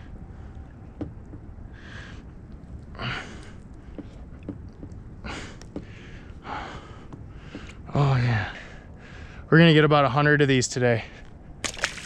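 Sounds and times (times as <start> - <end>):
steady low rumble: 0.0 - 11.7
man breathing heavily: 1.6 - 4.4, 5.1 - 9.5.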